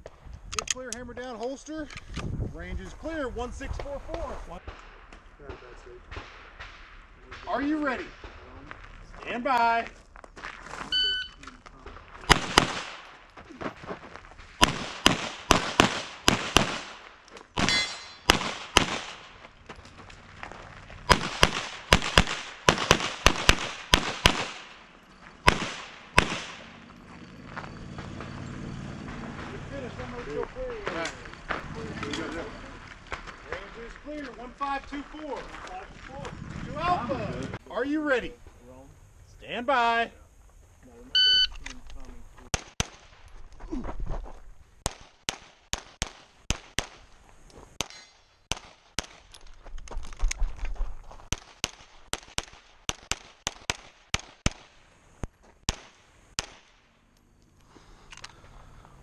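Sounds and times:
pistol shots with echo: 0:12.3 - 0:13.2, 0:14.6 - 0:19.4, 0:21.1 - 0:26.8, 0:47.8 - 0:49.2
metallic ring: 0:17.7 - 0:18.3, 0:47.9 - 0:48.3.

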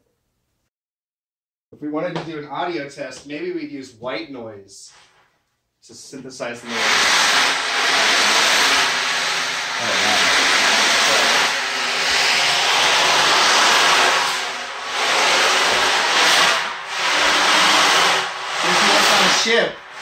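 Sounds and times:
loud white noise hiss: 0:06.6 - 0:20.0.

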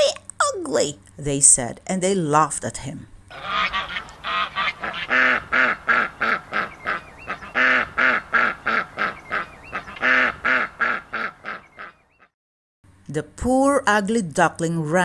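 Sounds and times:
ducks and geese quacking and honking: 0:03.3 - 0:12.3.

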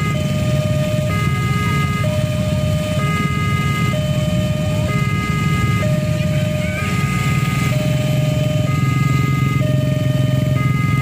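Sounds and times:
level crossing two-tone alarm: 0:00.0 - 0:11.0
motorcycle engines idling: 0:00.0 - 0:11.0.

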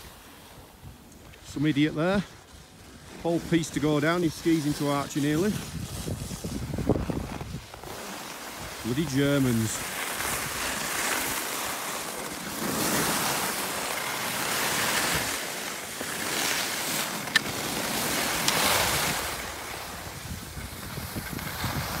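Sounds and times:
skis scraping over snow: 0:00.0 - 0:22.0
wind buffeting microphone: 0:05.4 - 0:11.4, 0:17.5 - 0:22.0.

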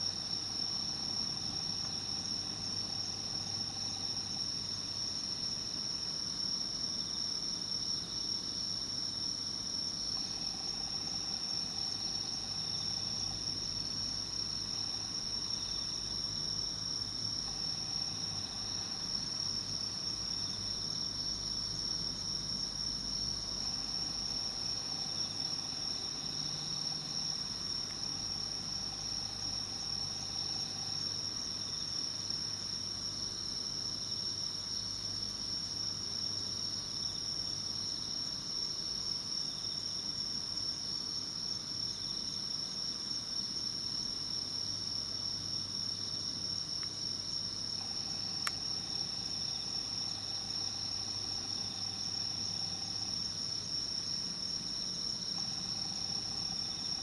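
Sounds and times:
night insects chirring: 0:00.0 - 0:57.0
faint low hum: 0:09.8 - 0:33.0.

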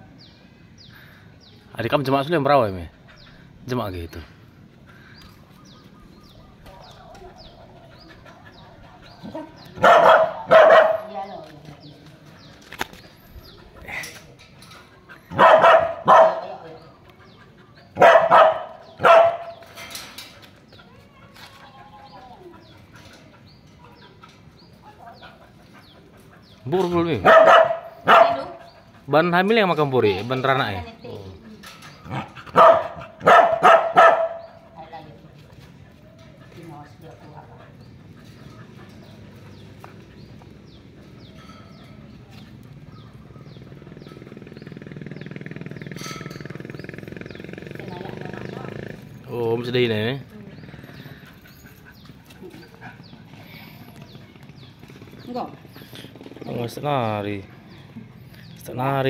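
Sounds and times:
small birds chirping: 0:00.0 - 0:59.0
dog barking: 0:08.9 - 0:11.4, 0:15.3 - 0:16.8, 0:18.0 - 0:19.7, 0:27.2 - 0:28.6, 0:32.1 - 0:34.8.

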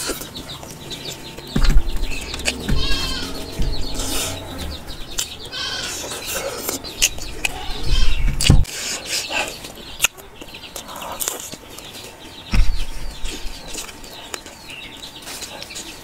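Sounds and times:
farm animals calling: 0:00.0 - 0:11.4
dull thumps: 0:00.9 - 0:05.6, 0:12.5 - 0:13.8
wet chewing: 0:08.4 - 0:11.9.

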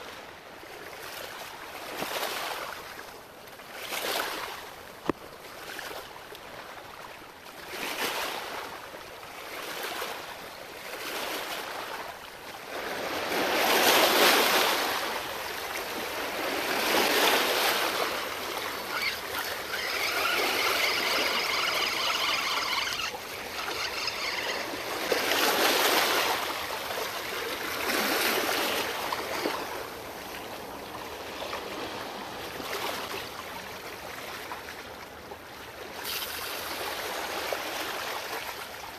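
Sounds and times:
waves washing against rocks: 0:13.0 - 0:30.0
faint whirring with steady tones: 0:18.0 - 0:25.4.

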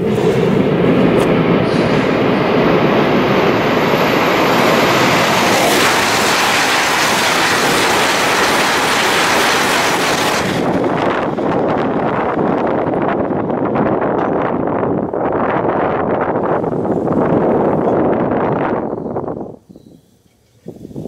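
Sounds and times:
high-speed train passing: 0:00.0 - 0:19.5.

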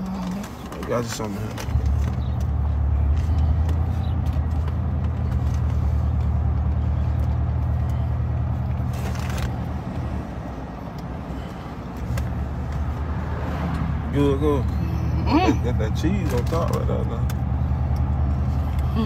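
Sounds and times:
truck engine idling: 0:00.0 - 0:13.2.

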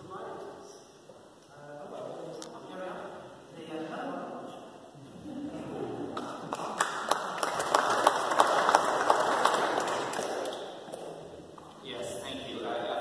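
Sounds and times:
audience applauding: 0:06.2 - 0:11.0.

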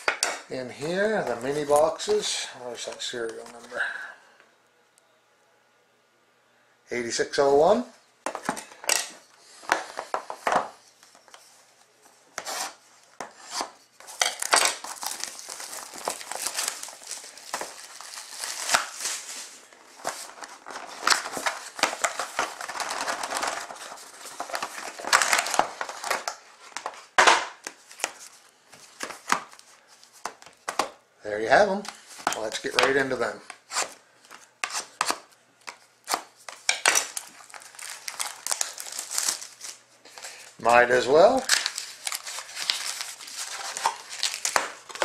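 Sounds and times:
packaging crinkling and rustling: 0:12.4 - 0:31.0, 0:31.6 - 0:45.0.

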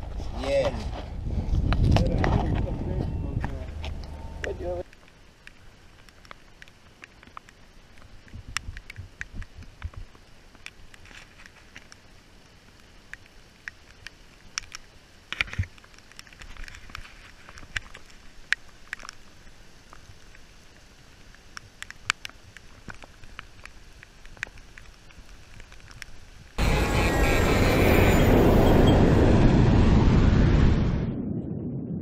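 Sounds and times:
faint steady hiss: 0:02.9 - 0:28.7
raindrops on leaves and pavement: 0:03.8 - 0:28.2.

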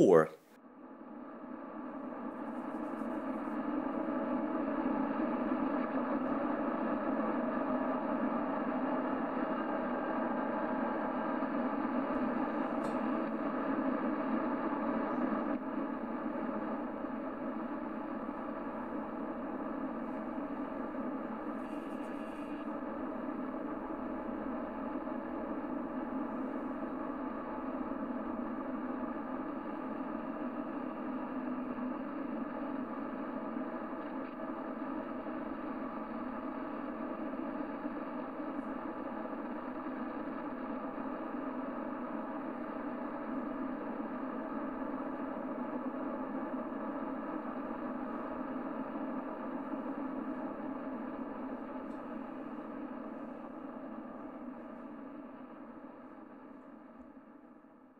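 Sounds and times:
faint steady tones: 0:11.3 - 0:57.9.

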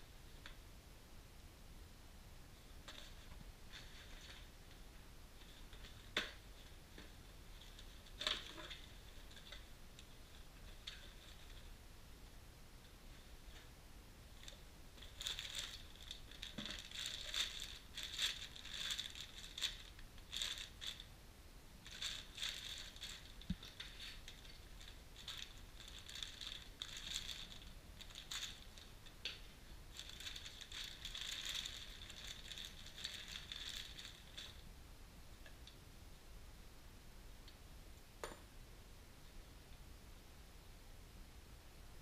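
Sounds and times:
plastic bag crinkling: 0:05.4 - 0:11.7, 0:14.4 - 0:21.1, 0:21.8 - 0:34.6
cardboard rustling: 0:15.0 - 0:21.1.

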